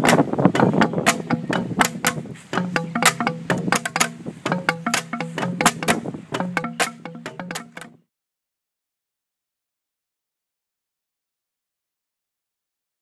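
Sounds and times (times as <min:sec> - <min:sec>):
bamboo tubes stamped on ground: 0:00.0 - 0:08.0.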